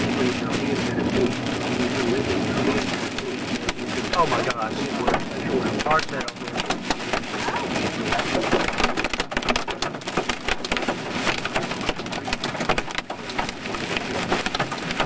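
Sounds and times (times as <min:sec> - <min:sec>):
hail pelting car roof: 0:00.0 - 0:15.0.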